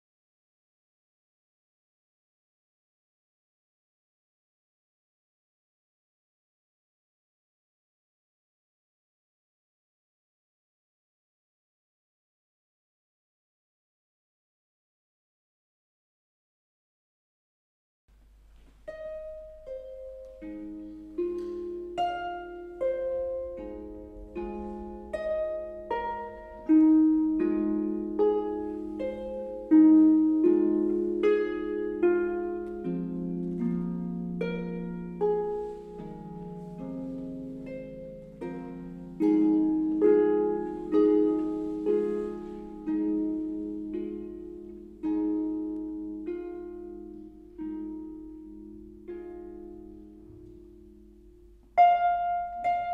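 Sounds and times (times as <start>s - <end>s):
harp playing slow piece: 18.2s - 52.9s.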